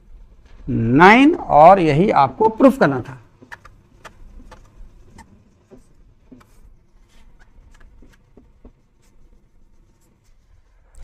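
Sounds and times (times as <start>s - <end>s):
marker writing on whiteboard: 3.4s - 10.8s.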